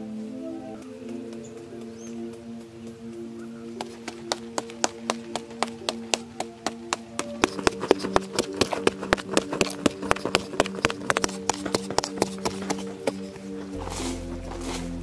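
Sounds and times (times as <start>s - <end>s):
background music chords: 0.0s - 15.0s
digging tool striking clay soil: 7.2s - 15.0s.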